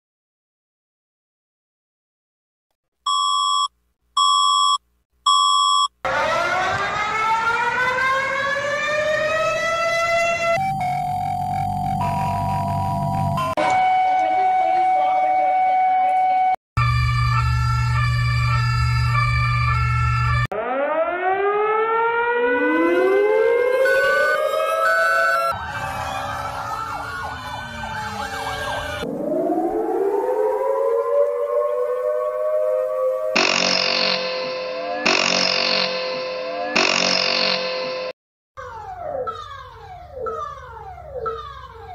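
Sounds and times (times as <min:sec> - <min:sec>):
electronic beeps: 0:03.1 - 0:05.9
rising emergency alert wail: 0:06.0 - 0:36.8, 0:37.6 - 0:41.9.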